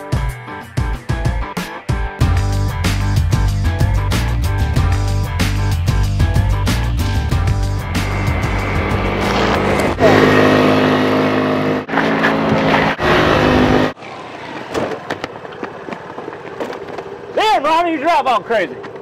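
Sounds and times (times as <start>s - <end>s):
music: 0.0s - 10.0s
motor scooter engine running: 7.2s - 17.4s.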